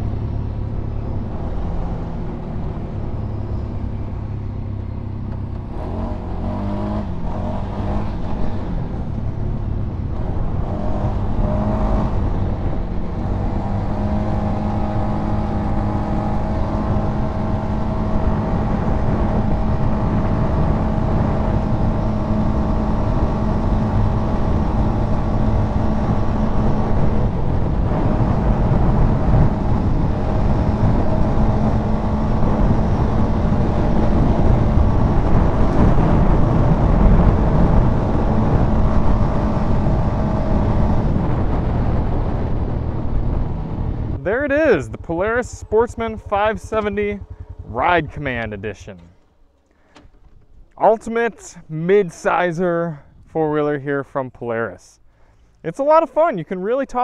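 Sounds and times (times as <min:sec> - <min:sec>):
atv engine revving high: 0:05.6 - 0:52.4.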